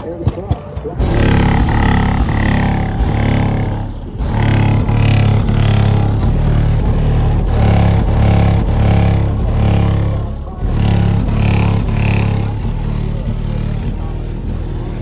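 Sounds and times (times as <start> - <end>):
bass-heavy music from car speakers: 0.0 - 15.0.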